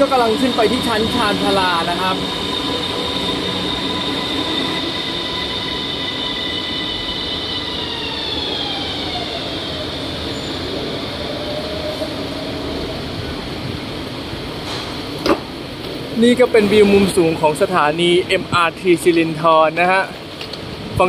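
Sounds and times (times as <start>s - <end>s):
electric train motors whining: 0.0s - 16.1s.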